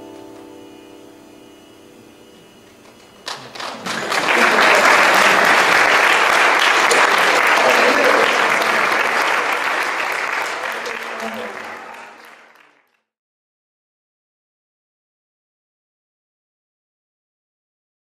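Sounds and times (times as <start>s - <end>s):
audience applause: 2.8s - 13.0s.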